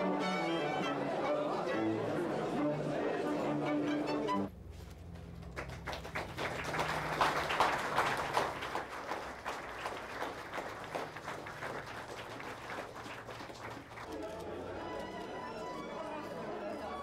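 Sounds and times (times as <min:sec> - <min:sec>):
crowd applauding: 0:05.1 - 0:17.0.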